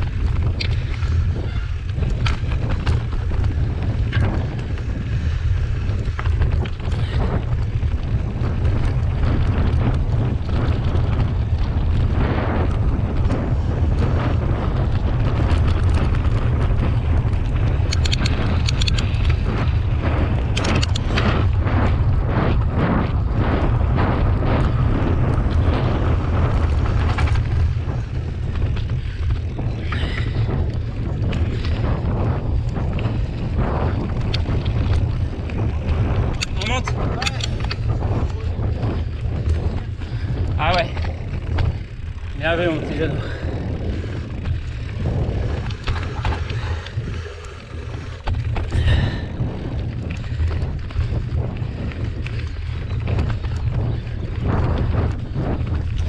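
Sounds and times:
bike clicking and rattling: 0.0s - 56.0s
tyres on dirt: 0.0s - 56.0s
wind buffeting microphone: 0.0s - 56.0s.

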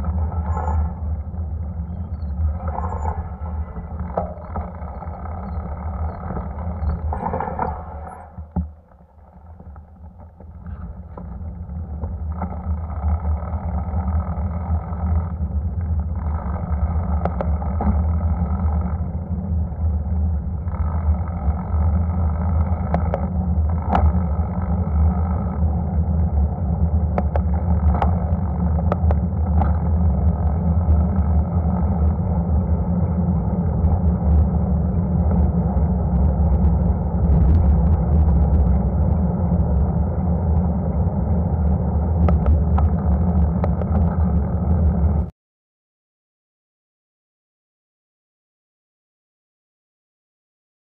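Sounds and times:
wind buffeting microphone: 27.4s - 45.3s.

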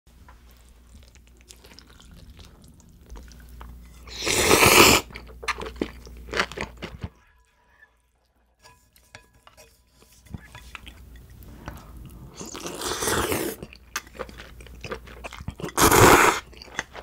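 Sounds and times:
person slurping noodles: 4.0s - 5.1s, 12.2s - 13.7s, 15.6s - 16.5s.

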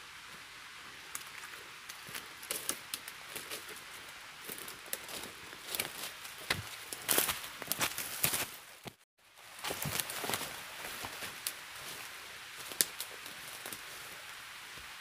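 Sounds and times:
steady background hiss: 0.0s - 15.0s
footsteps crunching on dry leaves: 1.2s - 14.2s.

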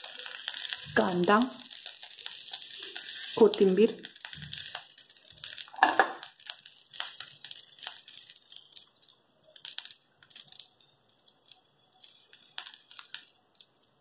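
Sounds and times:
onion pieces pattering: 0.0s - 10.7s.

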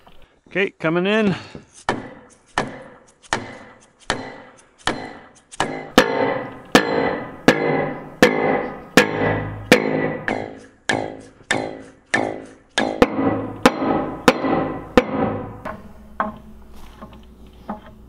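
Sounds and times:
pipe ringing: 5.7s - 16.6s.

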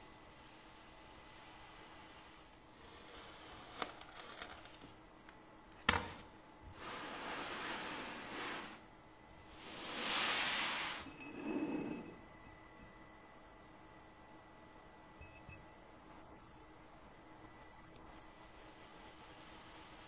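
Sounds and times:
sand scraping over smooth surface: 6.8s - 8.8s, 9.6s - 12.1s.

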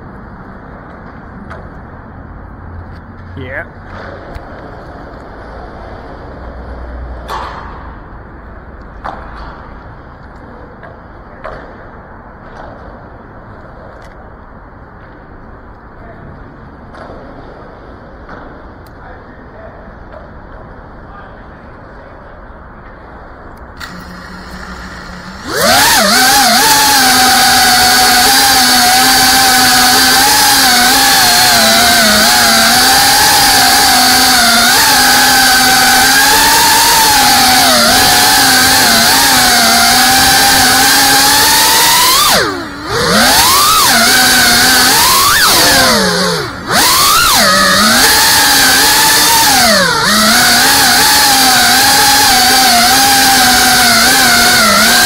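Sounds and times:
quadcopter motors buzzing whine: 23.8s - 55.0s.

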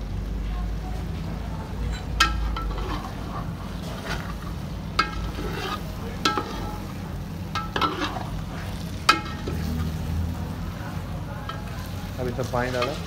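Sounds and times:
food sizzling: 0.0s - 13.0s
metal spatula clinking on pot: 1.9s - 3.5s, 5.0s - 10.0s, 11.4s - 12.0s, 12.6s - 13.0s.

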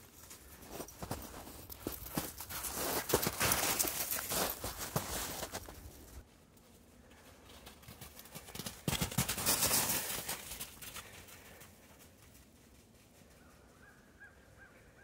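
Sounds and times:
footsteps crunching in snow: 0.0s - 6.2s.

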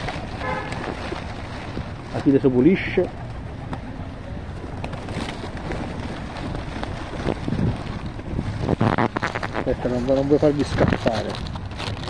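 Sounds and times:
pigeon wings flapping: 0.0s - 11.1s
wind on microphone: 5.2s - 12.0s.

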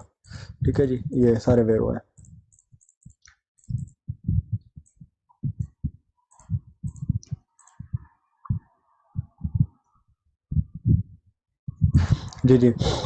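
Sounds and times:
computer mouse clicks: 2.2s - 4.0s, 4.8s - 8.0s
muffled low thumps: 3.6s - 9.8s, 10.5s - 13.0s.

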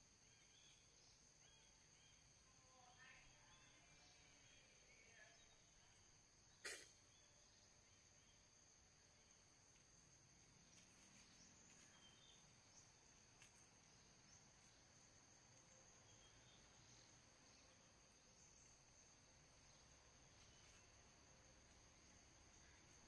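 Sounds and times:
faint ticks: 9.7s - 9.9s.

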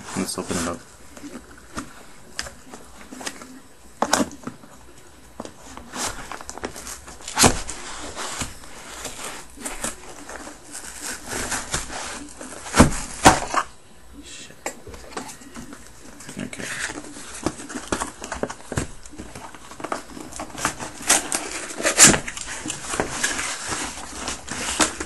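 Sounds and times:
cardboard scraping and rustling: 0.0s - 4.5s, 5.4s - 13.7s, 15.0s - 25.0s
knife cutting packing tape: 19.8s - 25.0s.

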